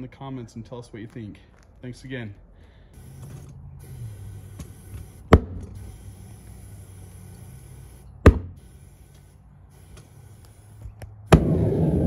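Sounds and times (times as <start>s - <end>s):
steady low hum: 2.5s - 12.0s.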